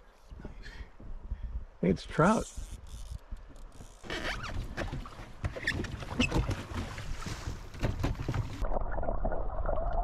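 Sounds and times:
water splashing and sloshing: 0:03.7 - 0:10.0.

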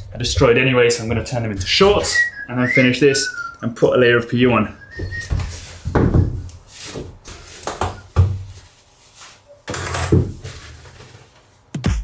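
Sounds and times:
rustling: 0:04.8 - 0:11.7
thumps on wooden boards: 0:05.0 - 0:08.5.

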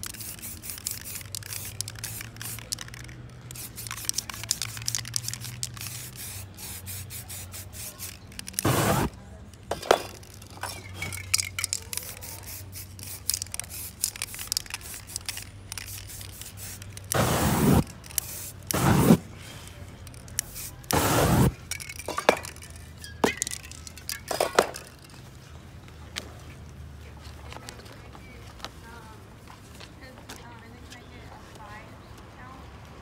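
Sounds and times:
spray paint can hissing: 0:00.0 - 0:19.3, 0:20.0 - 0:25.0
cans and tools clinking: 0:08.0 - 0:12.2, 0:20.9 - 0:25.2.

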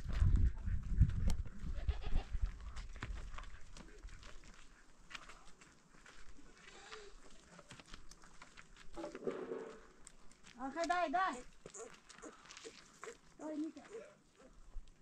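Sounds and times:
sheep and goats bleating: 0:01.7 - 0:02.4.

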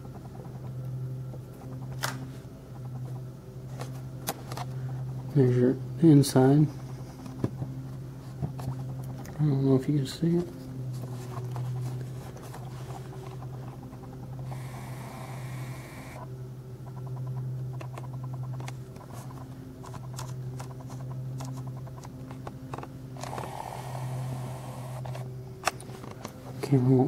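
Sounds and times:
steady low hum: 0:00.0 - 0:27.0
hiss: 0:14.5 - 0:16.2, 0:23.2 - 0:25.2.

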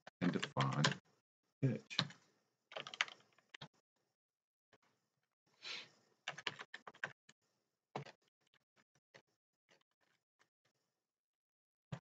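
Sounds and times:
keyboard typing: 0:02.0 - 0:03.7, 0:06.3 - 0:07.2.

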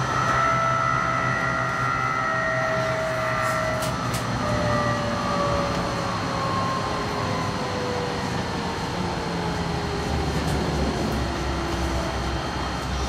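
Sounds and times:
tram rumbling on tracks: 0:00.0 - 0:13.0
tram whine: 0:00.0 - 0:13.0.

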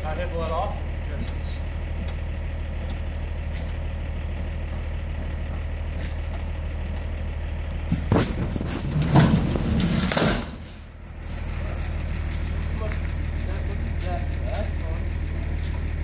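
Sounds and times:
truck engine idling: 0:00.0 - 0:16.0
pallet jack wheels clattering on metal: 0:07.8 - 0:14.7.

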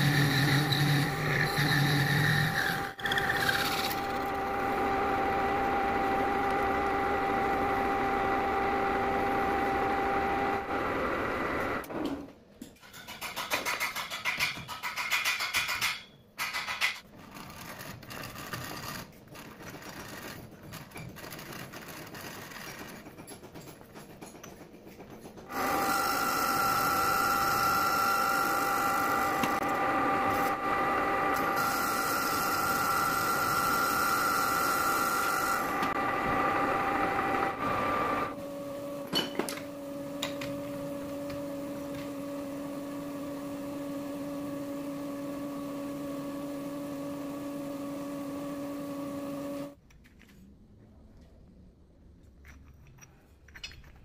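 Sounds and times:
metal lathe whining: 0:00.0 - 0:11.9, 0:25.5 - 0:49.8.

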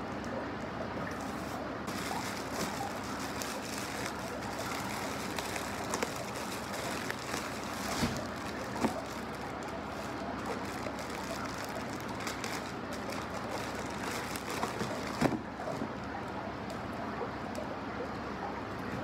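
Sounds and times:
steady background noise: 0:00.0 - 0:19.0
plastic packaging crinkling: 0:01.1 - 0:15.8.

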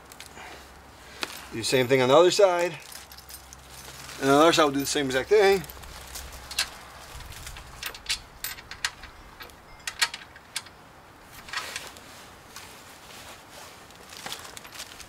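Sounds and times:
small metal parts clinking: 0:01.2 - 0:11.9, 0:14.2 - 0:15.0.

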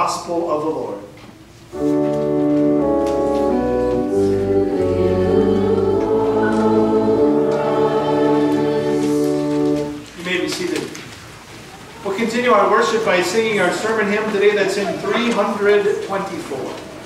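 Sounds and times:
church organ chords: 0:01.7 - 0:10.2
congregation singing: 0:01.7 - 0:10.2.

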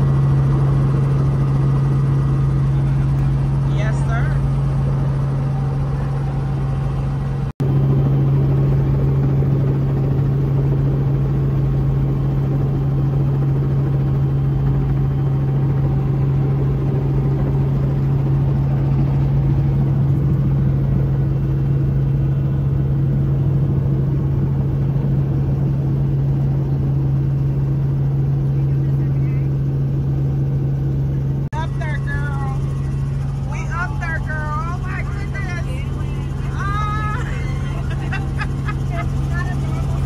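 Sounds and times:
helicopter engine and rotor drone: 0:00.0 - 0:40.0.

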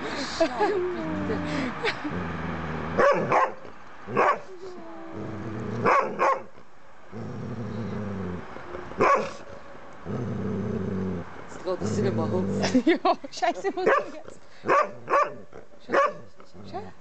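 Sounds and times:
dogs growling: 0:00.9 - 0:03.3, 0:04.8 - 0:06.2, 0:07.1 - 0:09.4, 0:10.0 - 0:12.9, 0:15.0 - 0:17.0
dogs barking: 0:03.0 - 0:04.5, 0:05.8 - 0:06.6, 0:09.0 - 0:09.5, 0:13.8 - 0:16.3.

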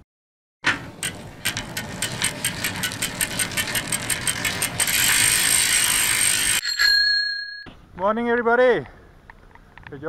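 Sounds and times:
bicycle freewheel ratchet clicking: 0:00.9 - 0:06.6.

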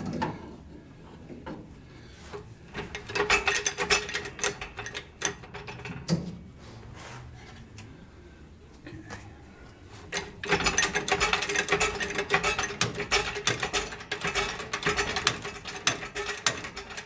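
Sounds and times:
sharp metal knocks: 0:10.2 - 0:17.0.

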